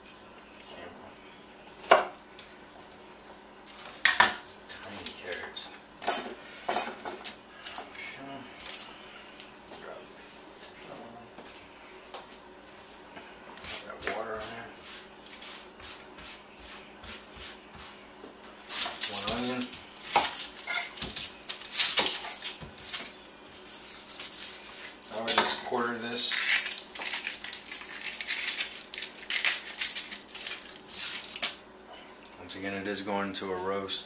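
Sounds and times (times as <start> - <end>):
onion skin rustling: 18.6 - 31.6.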